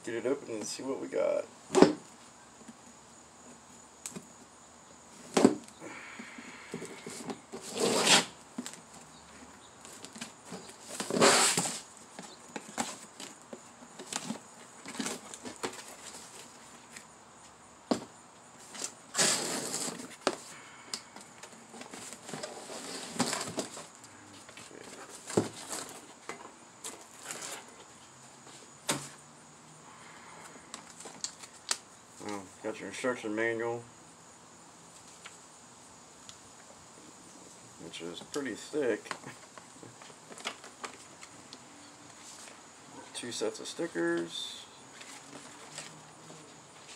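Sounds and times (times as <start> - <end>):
cardboard box scraping and rustling: 7.0 - 8.4, 10.0 - 11.9, 18.6 - 20.4, 21.7 - 23.9, 24.9 - 26.2, 26.9 - 27.8.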